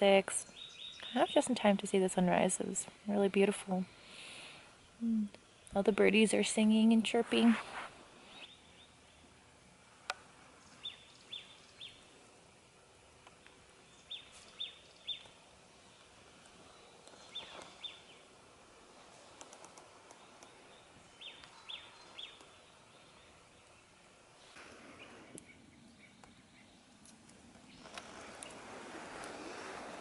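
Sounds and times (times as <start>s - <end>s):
faint outdoor hiss: 0.0s - 30.0s
songbird calling: 0.4s - 1.5s, 10.6s - 12.1s, 13.8s - 18.3s, 20.1s - 26.9s.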